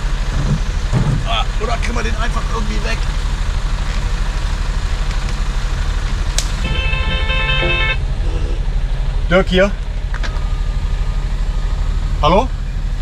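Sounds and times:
diesel engine idling: 0:00.0 - 0:13.0
phone ringtone: 0:06.7 - 0:08.0.

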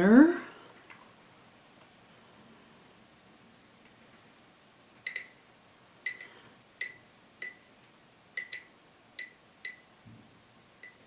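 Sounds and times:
paintbrush clinking against glass jar: 0:08.4 - 0:09.8.

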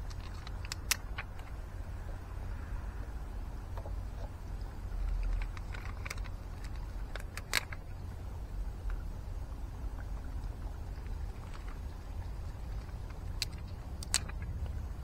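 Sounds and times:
plastic sheet clicks and crackles: 0:00.0 - 0:01.6, 0:05.0 - 0:07.8, 0:12.6 - 0:14.8
steady low rumble: 0:00.0 - 0:15.0.

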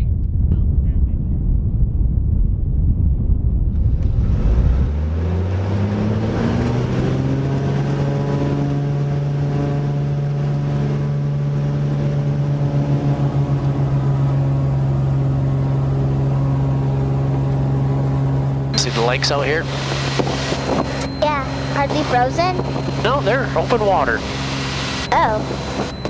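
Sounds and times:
wind buffeting microphone: 0:00.0 - 0:05.1
propeller plane engine: 0:00.0 - 0:26.0.

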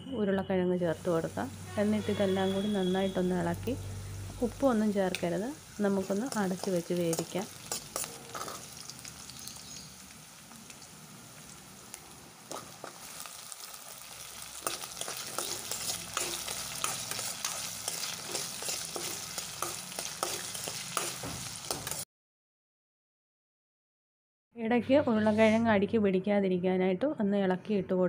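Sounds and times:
potatoes sizzling in oil: 0:00.9 - 0:22.0
metal spoon scraping a pan: 0:06.0 - 0:09.3, 0:12.5 - 0:22.0.

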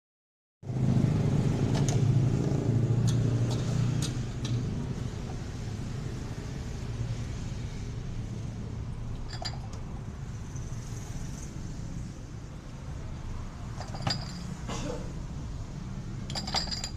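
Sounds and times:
dishes clinking: 0:13.8 - 0:14.6, 0:16.3 - 0:16.9.

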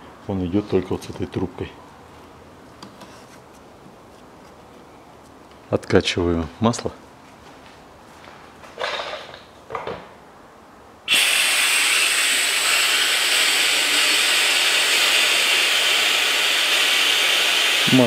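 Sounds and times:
pump running with steady hiss: 0:11.1 - 0:18.0.

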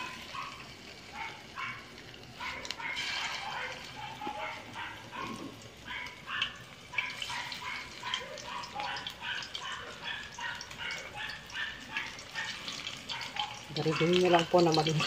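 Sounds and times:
oil sizzling: 0:00.0 - 0:15.0
high-pitched animal yelps: 0:01.2 - 0:14.6.

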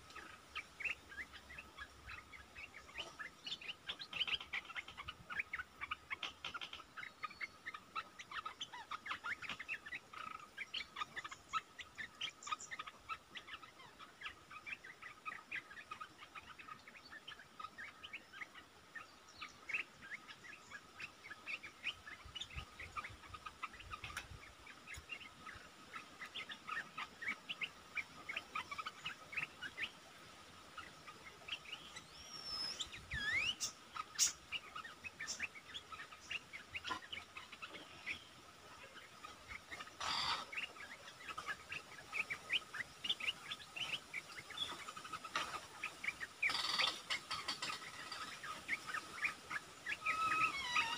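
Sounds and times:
birds chirping: 0:00.0 - 0:50.9
gliding bird call: 0:43.8 - 0:50.9.

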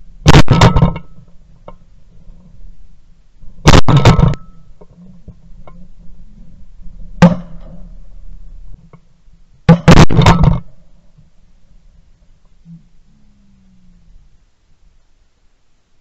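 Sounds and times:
shotgun blasts: 0:00.2 - 0:01.0, 0:03.6 - 0:04.6, 0:07.2 - 0:07.7, 0:09.7 - 0:10.6.

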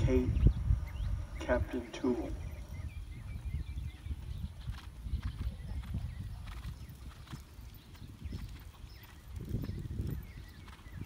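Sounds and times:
low rumble: 0:00.0 - 0:07.5
horse hoofbeats on sand: 0:03.6 - 0:11.0.

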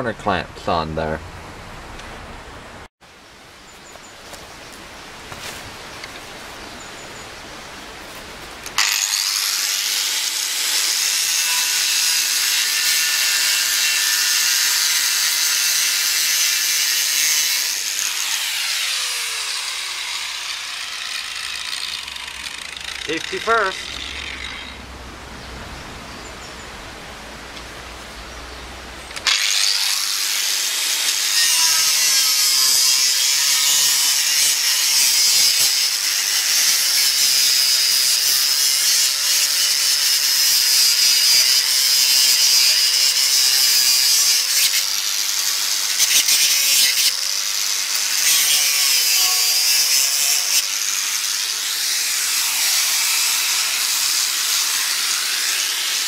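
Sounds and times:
angle grinder cutting brick: 0:08.7 - 0:24.8, 0:29.2 - 0:56.0.

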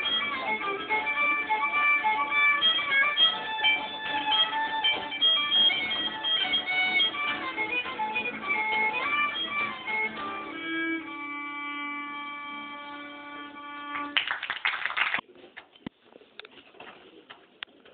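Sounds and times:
live music melody: 0:00.0 - 0:14.3.

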